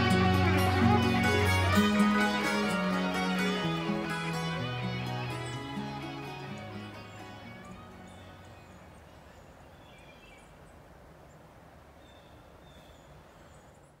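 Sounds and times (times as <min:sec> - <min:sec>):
guitar instrumental: 0:00.0 - 0:08.7
faint steady hiss: 0:00.0 - 0:14.0.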